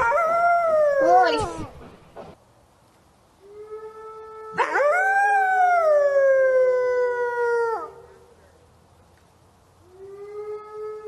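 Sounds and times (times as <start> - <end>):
fainter steady wolf howl: 0.0 - 1.5, 3.4 - 8.2, 9.9 - 11.0
wolf howling: 0.0 - 1.6.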